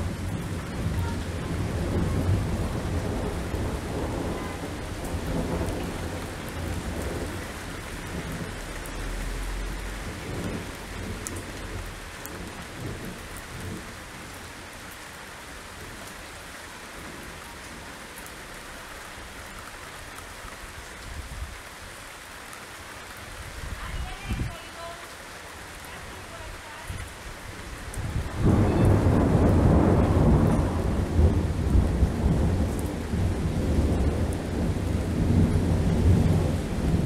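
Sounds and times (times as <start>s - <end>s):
thunder rumbling: 0.0s - 14.4s, 26.1s - 37.0s
torrential rain: 0.0s - 37.0s.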